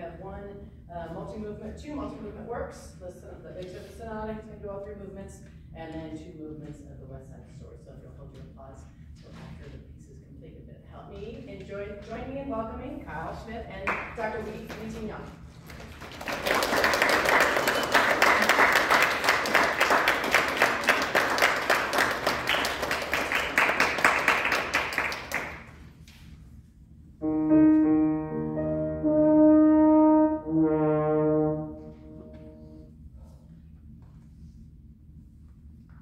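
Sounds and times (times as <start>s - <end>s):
audience applauding: 15.7s - 25.8s
french horn long notes: 27.2s - 33.0s.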